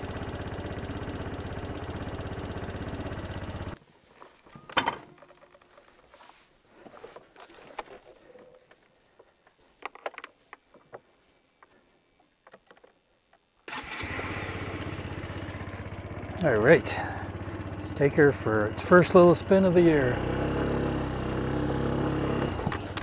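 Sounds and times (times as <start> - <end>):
scooter engine idling: 0.0 - 3.8, 13.7 - 23.0
faint clicks and knocks: 7.1 - 13.6.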